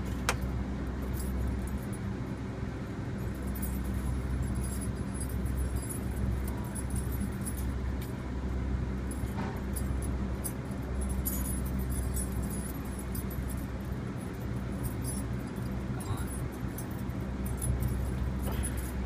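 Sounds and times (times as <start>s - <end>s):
diesel engine idling: 0.0s - 19.0s
faint metallic clinks of hooks: 14.9s - 19.0s.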